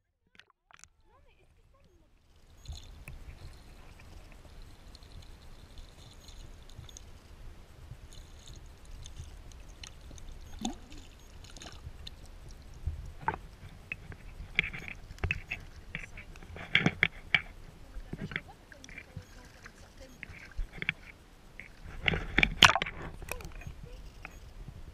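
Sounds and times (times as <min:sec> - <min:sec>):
underwater clicks and ticks: 0:00.3 - 0:24.6
muffled underwater water rumble: 0:01.0 - 0:24.9.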